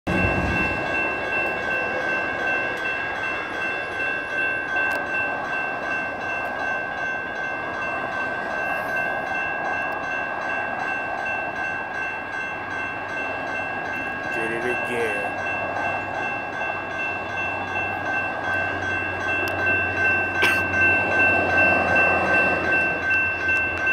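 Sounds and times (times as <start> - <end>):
crossing warning bell ringing: 0.1 - 23.9.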